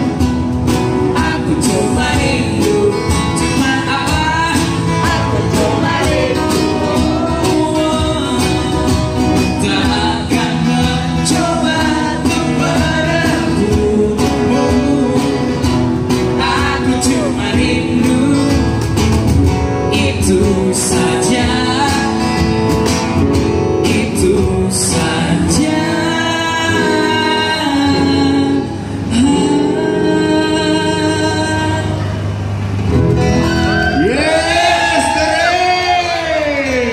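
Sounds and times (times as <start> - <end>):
acoustic guitars: 0.0 - 36.9
cajon beat: 0.0 - 36.9
man singing: 1.0 - 19.0, 19.8 - 22.6, 23.7 - 32.2.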